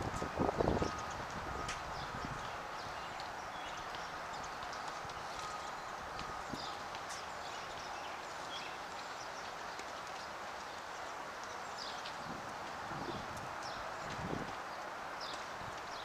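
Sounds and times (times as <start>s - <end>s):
outdoor background noise: 0.0s - 16.0s.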